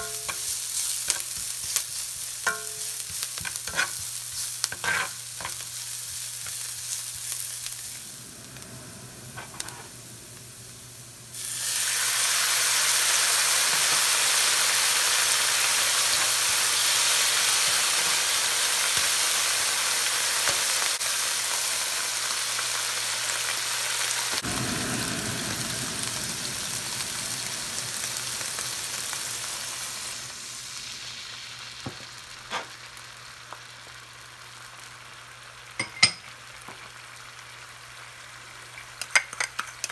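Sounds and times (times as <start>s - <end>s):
spatula stirring in a pan: 0.0s - 7.5s
onion frying in a pan: 0.0s - 39.9s
sauce sizzling in a hot pan: 0.0s - 39.9s
steady low hum: 8.0s - 11.3s, 24.4s - 30.4s.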